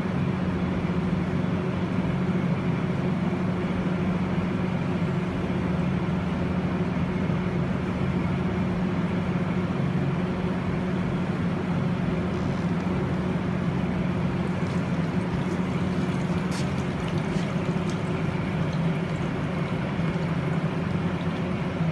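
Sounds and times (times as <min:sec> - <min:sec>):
low machine hum: 0:00.0 - 0:21.9
water sloshing and dripping: 0:11.4 - 0:21.9.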